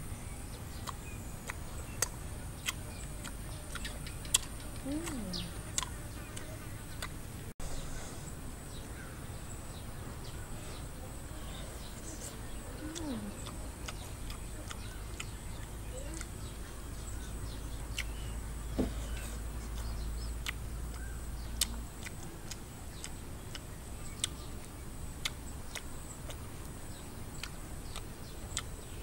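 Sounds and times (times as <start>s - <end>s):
chewing and lip smacks: 0.7s - 7.2s, 12.1s - 18.3s, 19.0s - 28.8s.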